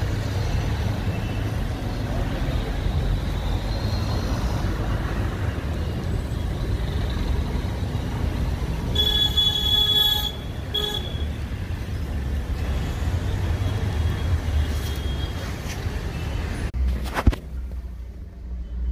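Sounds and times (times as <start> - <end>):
rumble of passing traffic: 0.0 - 18.9
vehicle horn toot: 8.9 - 11.3.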